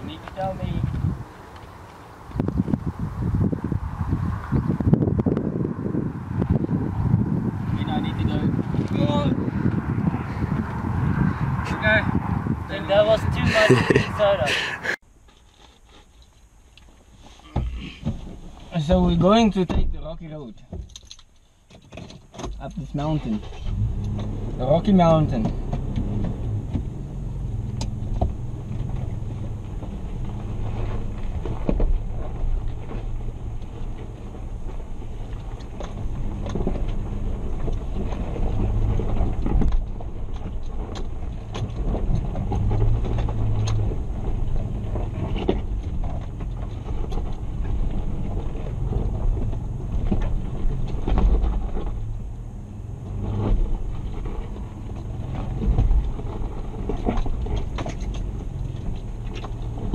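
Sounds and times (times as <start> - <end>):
engine running at low revs: 0.0 - 15.0, 23.2 - 59.9
knocks and rattles over rocks: 27.9 - 52.2, 53.1 - 59.9.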